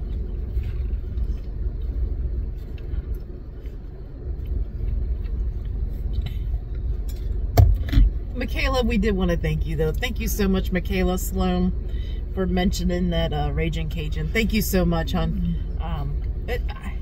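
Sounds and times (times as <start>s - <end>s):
low rumble inside car cabin: 0.0s - 17.0s
sharp thump: 7.6s - 8.1s.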